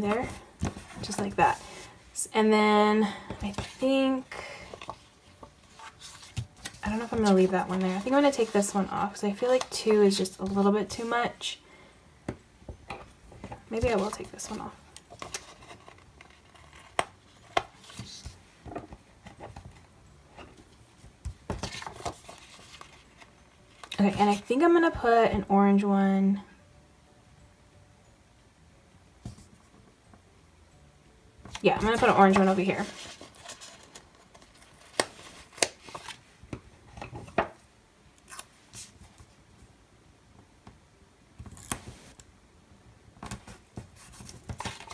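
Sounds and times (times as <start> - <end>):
paper rustling: 4.6 - 9.7, 21.5 - 24.5, 31.8 - 36.2.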